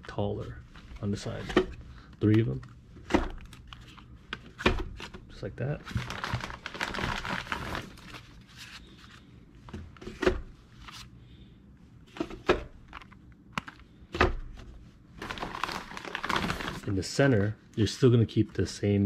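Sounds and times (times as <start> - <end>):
plastic bag rustling: 5.8 - 9.2, 15.2 - 17.0.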